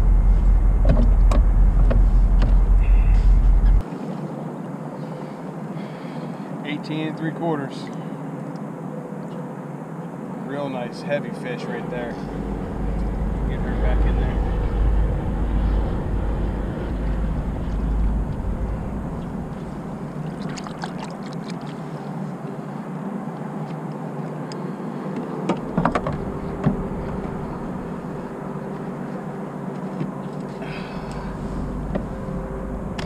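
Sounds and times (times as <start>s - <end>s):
wind rumble on microphone: 0.0s - 3.8s, 11.9s - 21.6s
faint hum: 0.0s - 33.0s.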